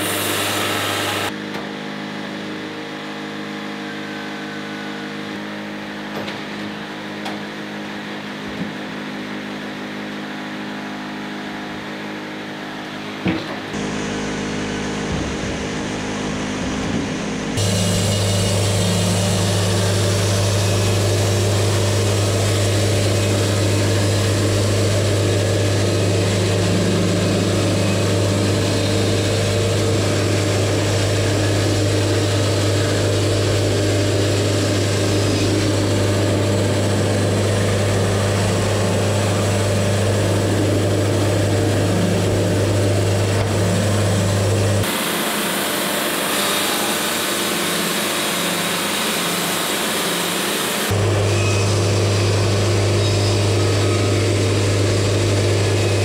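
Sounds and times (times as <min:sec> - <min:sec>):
bandsaw sawing through log: 0:17.5 - 0:56.0.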